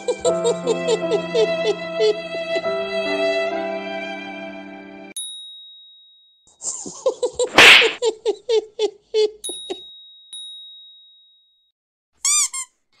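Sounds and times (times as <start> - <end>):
bell ding: 5.2 - 6.5, 9.4 - 11.6
sneeze-like burst: 7.6 - 8.0.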